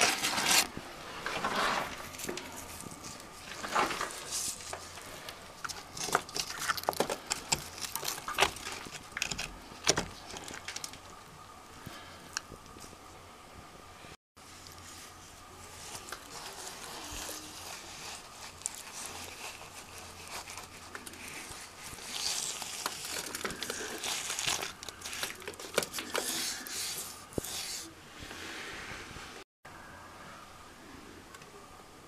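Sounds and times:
mortar crunching and scraping by hand: 0.0 - 11.0, 14.5 - 28.0.

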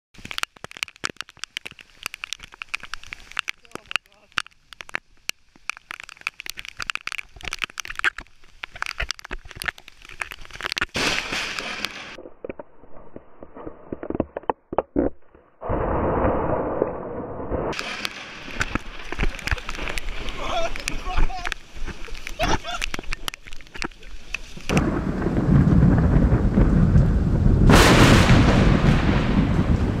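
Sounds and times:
rain crackling on microphone: 0.2 - 30.0
lightning strike crack: 11.0 - 12.2, 15.6 - 20.4, 24.7 - 30.0
thunder crash: 15.6 - 18.5, 24.7 - 30.0
thunder rumbling: 15.6 - 20.4, 24.7 - 30.0
storm wind: 15.6 - 22.0, 24.4 - 30.0.

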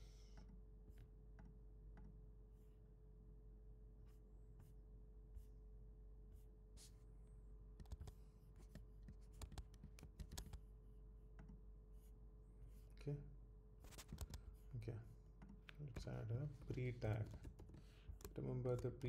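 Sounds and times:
faint steady hum: 0.0 - 19.0
keyboard keystrokes: 9.4 - 10.6.

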